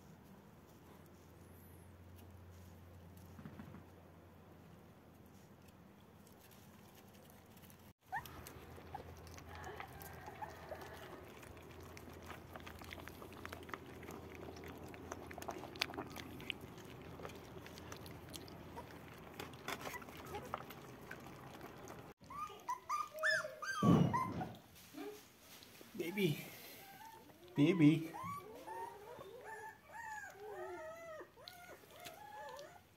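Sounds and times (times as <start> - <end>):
puppies chewing food: 6.1 - 23.6, 25.5 - 32.9
low steady hum: 7.4 - 22.2
puppies whining: 8.0 - 24.6, 26.5 - 32.9.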